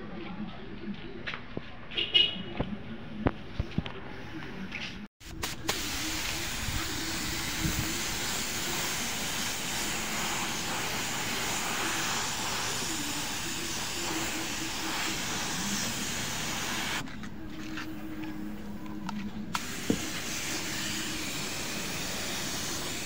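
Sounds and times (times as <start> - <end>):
paint spray gun hissing: 5.2 - 17.0, 19.5 - 23.0.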